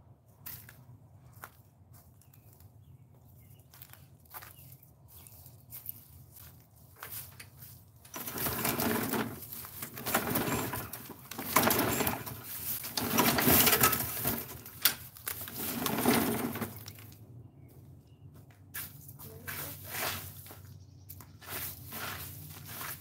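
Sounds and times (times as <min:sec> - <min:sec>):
lawn mower starter cord pulls: 0:08.1 - 0:17.0.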